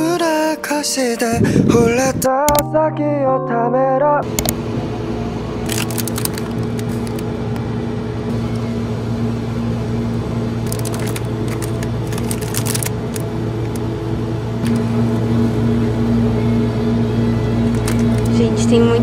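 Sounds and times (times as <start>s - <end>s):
steady low hum: 1.2s - 2.6s, 4.2s - 19.0s
plastic wrappers crinkling: 5.6s - 7.2s, 10.6s - 13.8s, 17.6s - 18.3s.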